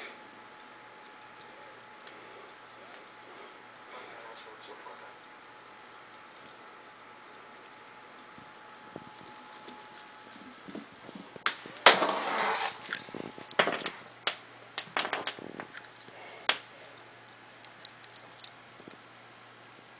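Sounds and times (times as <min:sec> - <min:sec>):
kitten scuffling: 0:07.9 - 0:14.2.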